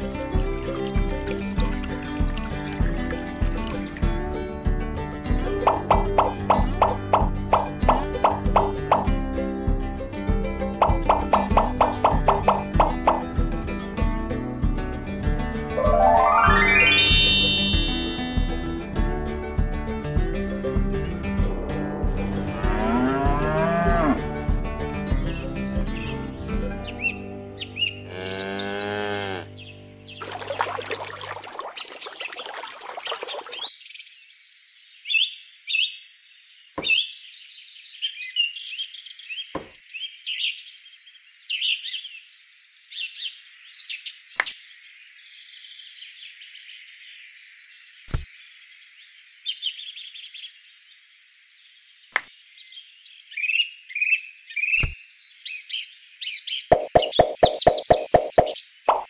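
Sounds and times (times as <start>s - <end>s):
birds chirping: 5.6s - 9.1s, 10.8s - 13.3s, 15.8s - 18.6s, 26.0s - 42.3s, 49.4s - 59.0s
cow mooing: 22.5s - 24.2s, 28.1s - 29.5s.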